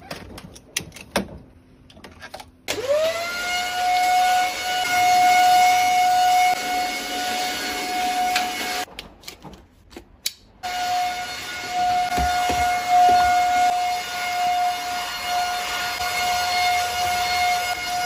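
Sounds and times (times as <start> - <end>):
vacuum cleaner running: 2.7 - 8.9, 10.6 - 18.0.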